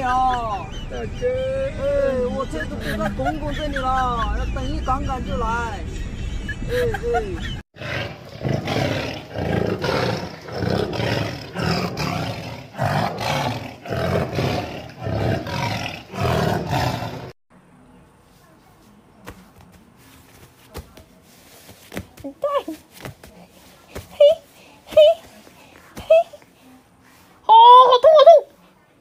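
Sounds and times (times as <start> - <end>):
tiger roaring growls: 7.8 - 17.3.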